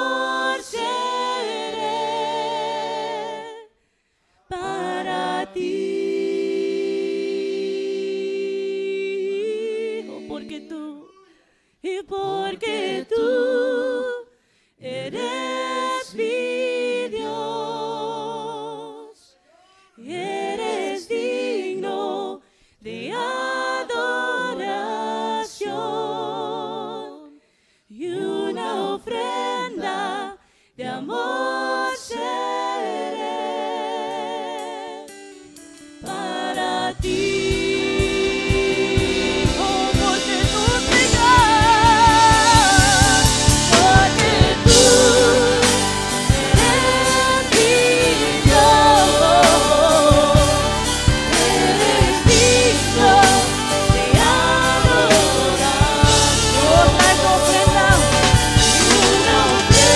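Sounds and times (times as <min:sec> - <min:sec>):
voices singing a worship song: 0:00.0 - 0:59.9
band with drums: 0:37.0 - 0:59.9.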